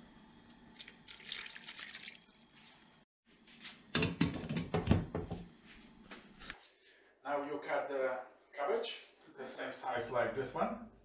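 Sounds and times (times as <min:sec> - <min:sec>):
water pouring and splashing: 0:00.8 - 0:03.0.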